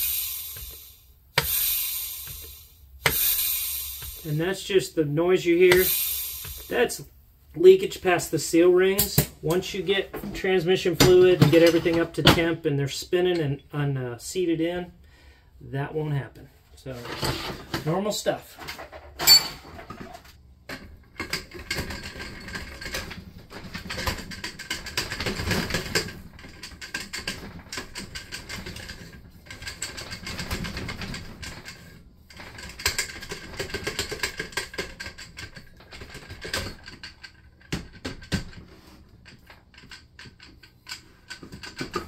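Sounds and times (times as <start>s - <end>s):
metallic clicking of clutch plates: 0.0s - 4.4s.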